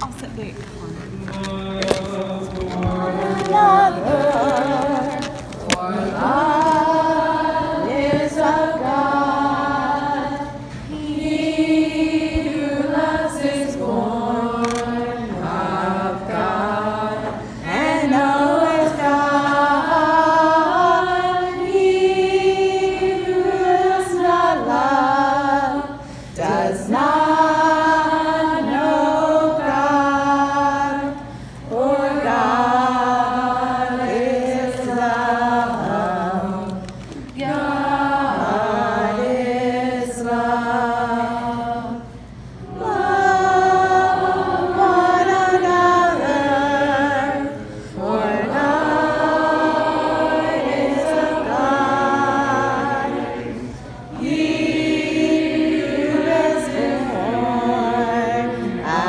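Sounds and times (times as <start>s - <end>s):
group singing unaccompanied: 1.1s - 59.0s.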